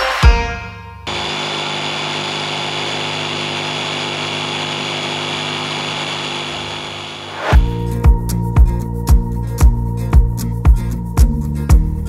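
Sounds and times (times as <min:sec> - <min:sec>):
jigsaw cutting wood: 0:01.1 - 0:07.6.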